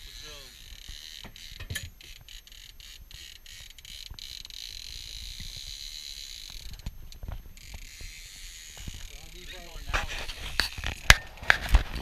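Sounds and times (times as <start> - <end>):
fishing reel whirring: 0.0 - 11.6
wind rumbling on microphone: 9.8 - 12.0.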